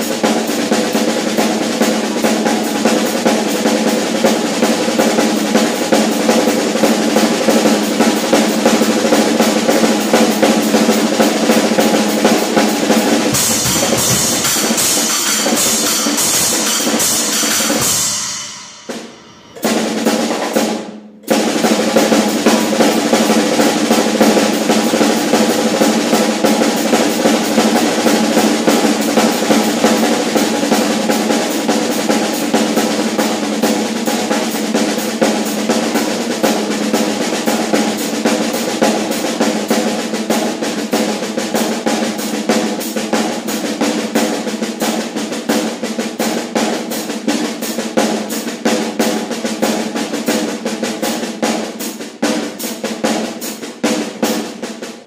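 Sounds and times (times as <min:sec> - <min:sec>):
snare drum paradiddles: 0:00.0 - 0:55.0
bass drum hits: 0:13.1 - 0:20.4.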